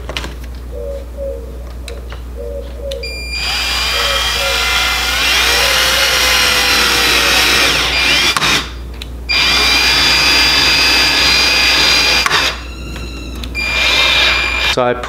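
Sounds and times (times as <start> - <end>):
power drill driving screws: 3.2 - 14.8.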